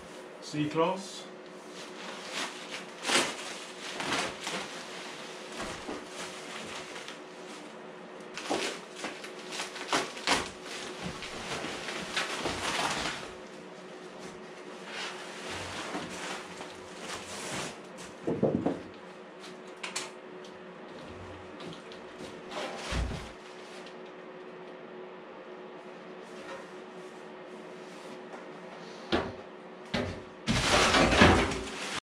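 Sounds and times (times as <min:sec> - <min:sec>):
plastic and bubble wrap crinkling: 0:01.6 - 0:17.9.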